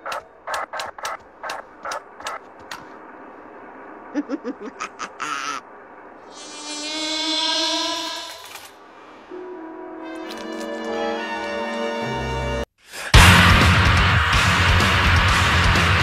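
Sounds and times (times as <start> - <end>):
sharp clicks: 0.0 - 3.0
cartoon fly buzzing: 6.3 - 8.5.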